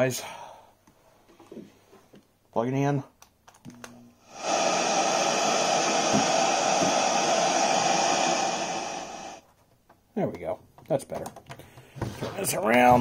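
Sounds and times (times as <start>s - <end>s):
radio static hiss: 4.3s - 9.4s.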